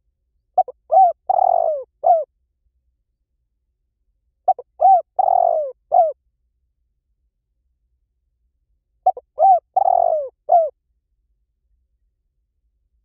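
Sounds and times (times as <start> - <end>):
dove cooing: 0.6 - 2.3, 4.5 - 6.2, 9.0 - 10.7.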